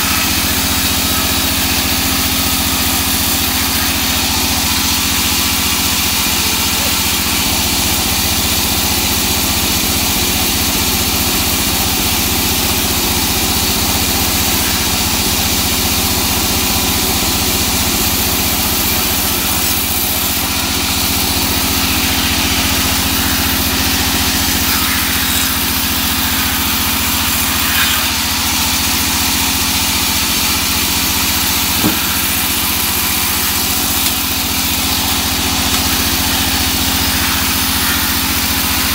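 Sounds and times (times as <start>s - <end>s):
band saw cutting log: 0.0s - 38.9s
short knock: 31.8s - 32.1s.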